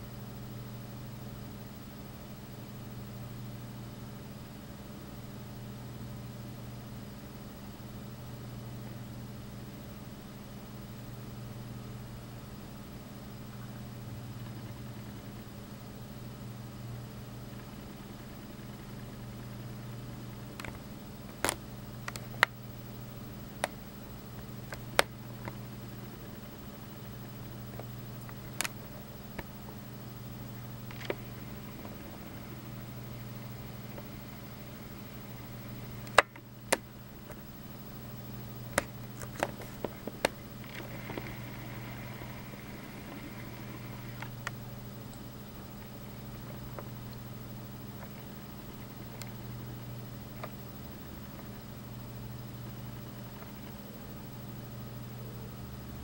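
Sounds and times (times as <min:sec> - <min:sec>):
steady low hum: 0:00.0 - 0:56.0
sharp clicks: 0:23.6 - 0:26.5, 0:27.5 - 0:29.8, 0:30.6 - 0:37.4.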